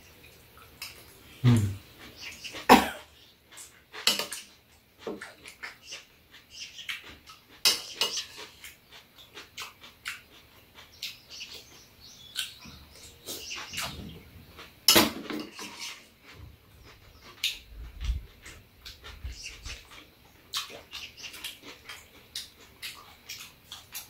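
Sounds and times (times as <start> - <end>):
people eating mouth sounds: 0.8 - 14.7, 15.5 - 24.0.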